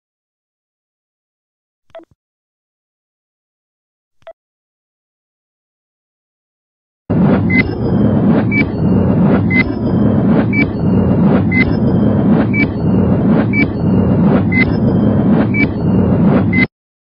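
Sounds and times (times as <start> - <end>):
low rumbling drone: 7.1 - 16.7.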